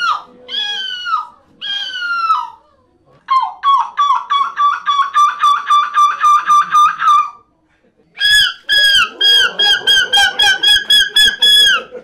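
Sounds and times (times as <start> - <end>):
person imitating gull calls: 0.0 - 2.6, 8.2 - 11.9.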